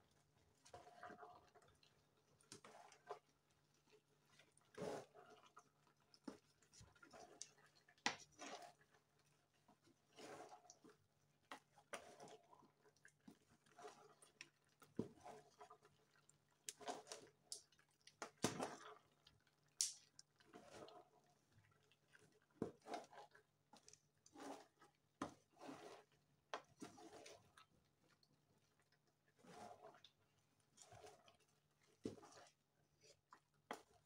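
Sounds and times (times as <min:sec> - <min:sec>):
spoon stirring thick soup: 0:20.1 - 0:34.0.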